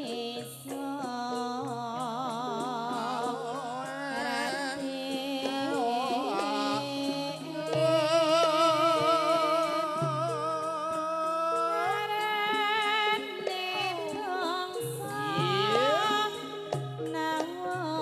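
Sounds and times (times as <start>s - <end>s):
gamelan ensemble: 0.0s - 18.0s
woman singing with vibrato: 0.0s - 18.0s.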